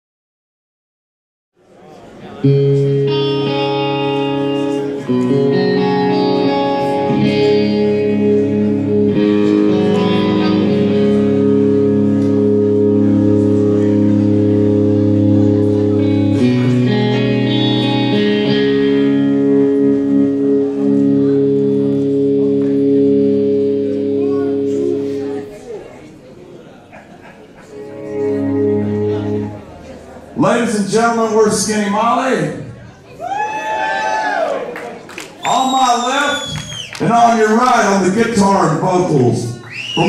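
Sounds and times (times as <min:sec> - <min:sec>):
electric guitar chords: 0:02.3 - 0:26.2, 0:27.4 - 0:32.9.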